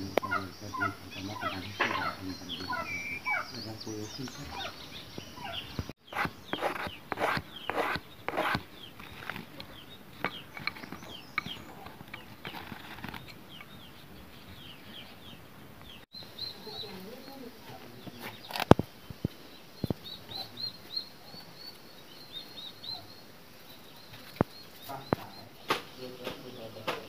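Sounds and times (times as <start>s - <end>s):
birds chirping: 0.0s - 27.0s
scraping noises: 6.1s - 13.4s.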